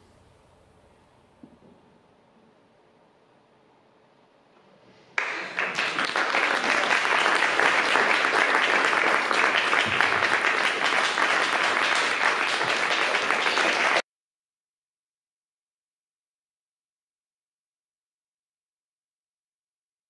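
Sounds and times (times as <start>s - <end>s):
audience applauding: 5.2s - 14.0s.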